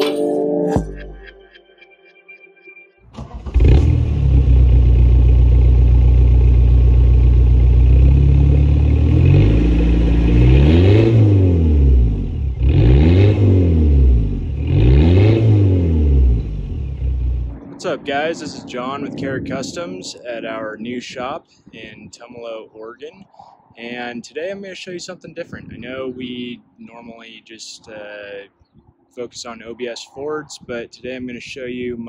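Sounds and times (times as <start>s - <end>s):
diesel engine starting and idling: 3.1s - 14.6s
diesel engine revving: 3.1s - 18.8s.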